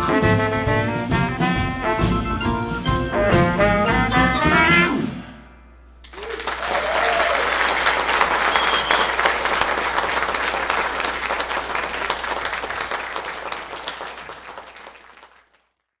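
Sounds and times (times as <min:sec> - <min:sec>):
audience applauding: 0:06.1 - 0:16.0.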